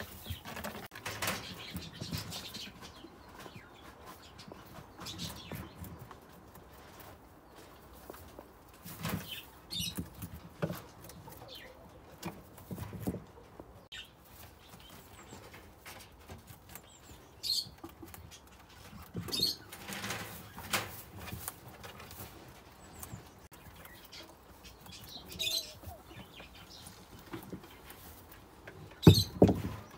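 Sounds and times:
rabbit rustling in hay: 0:12.4 - 0:29.3.

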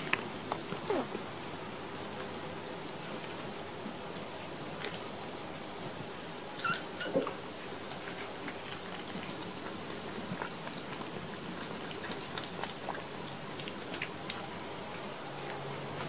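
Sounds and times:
kittens lapping milk: 0:02.0 - 0:05.3, 0:06.6 - 0:16.0.

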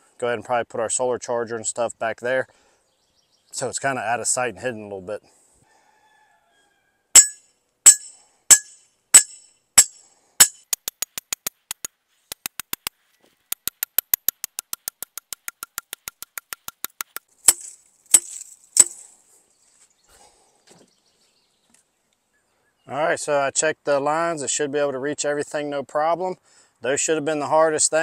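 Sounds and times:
hammer striking metal rod: 0:07.2 - 0:11.9, 0:16.7 - 0:19.0.

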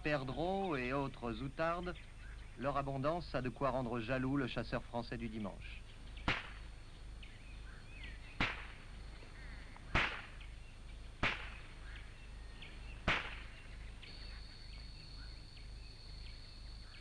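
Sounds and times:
faint bird chirps: 0:00.0 - 0:17.0
high insect call: 0:00.0 - 0:17.0
shotgun shots: 0:06.2 - 0:06.7, 0:08.4 - 0:09.0, 0:09.8 - 0:10.5, 0:11.2 - 0:12.0, 0:13.0 - 0:13.8.

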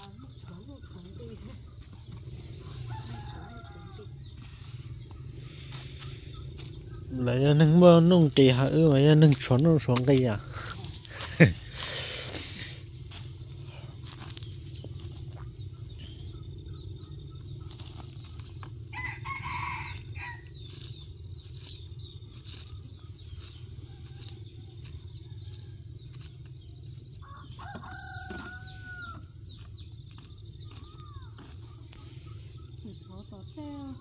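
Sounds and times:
steady low rumble: 0:00.0 - 0:27.6
rooster crowing: 0:02.7 - 0:04.2, 0:18.9 - 0:20.5, 0:27.2 - 0:29.3.

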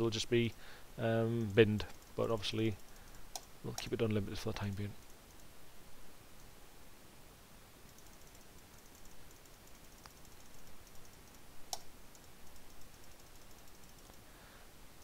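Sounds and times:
computer mouse clicking: 0:02.8 - 0:04.0, 0:05.0 - 0:05.5, 0:07.9 - 0:14.2.

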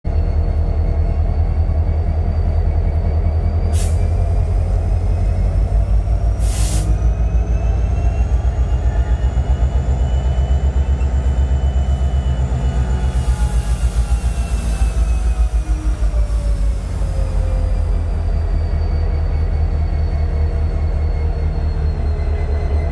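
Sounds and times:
diesel locomotive rumbling: 0:00.0 - 0:22.9
short hisses: 0:06.4 - 0:07.0.

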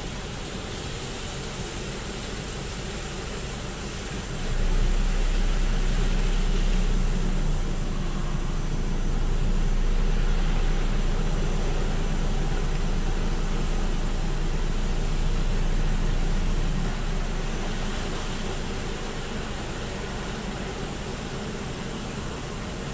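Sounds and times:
water spray: 0:00.0 - 0:08.0
machinery hum: 0:00.0 - 0:22.9.

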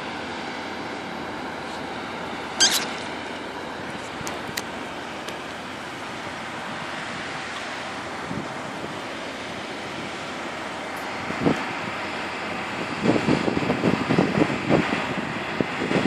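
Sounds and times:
combine harvester running: 0:00.0 - 0:16.0
wind on microphone: 0:12.6 - 0:16.0.

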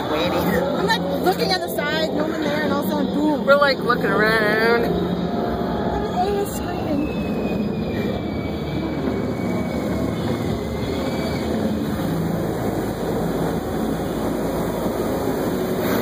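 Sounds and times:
car wash water spray and machinery: 0:07.9 - 0:16.0.

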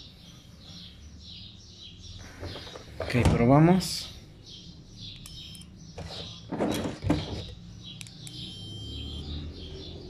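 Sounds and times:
short high-pitched electronic beeps: 0:08.4 - 0:09.2.

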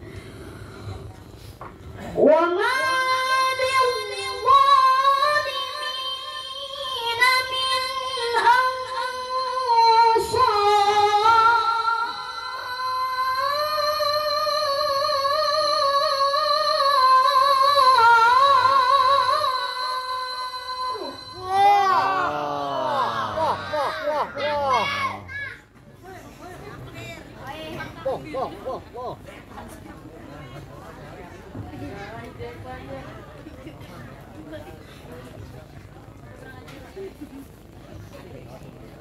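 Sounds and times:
child chanting in a high voice: 0:02.2 - 0:25.7.

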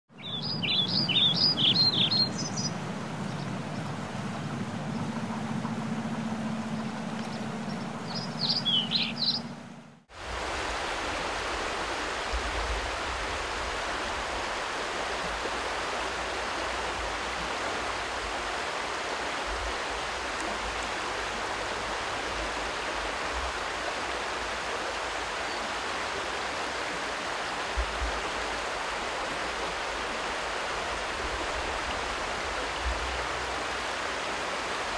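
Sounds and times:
river water rushing: 0:00.2 - 0:34.9
low hum: 0:00.9 - 0:10.1
low rumble: 0:02.3 - 0:10.0
high bird-like chirps: 0:06.8 - 0:09.6.

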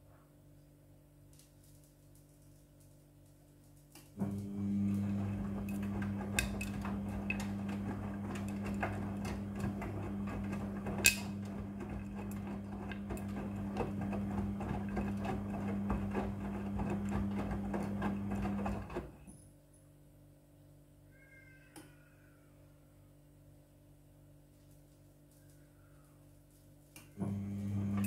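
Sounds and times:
washing machine motor humming: 0:04.2 - 0:19.3, 0:27.2 - 0:28.0.

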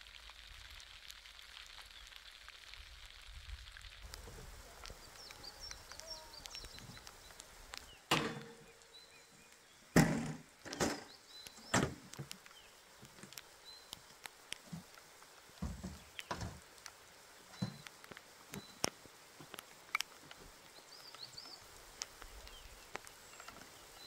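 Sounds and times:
camping gear knocks and thumps: 0:10.0 - 0:12.3.

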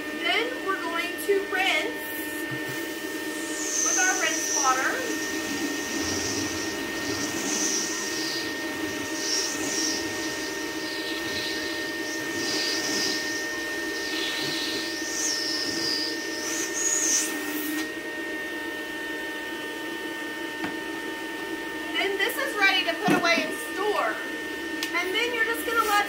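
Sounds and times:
vacuum motor hum: 0:00.0 - 0:26.0
vacuum cleaner air hiss: 0:02.2 - 0:17.9, 0:25.2 - 0:26.0.

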